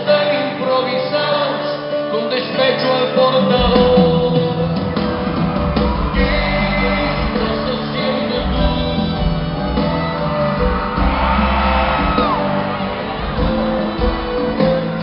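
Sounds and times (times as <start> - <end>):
live pop-rock band: 0.0 - 15.0
person singing: 0.0 - 15.0
heavy bass: 3.6 - 15.0.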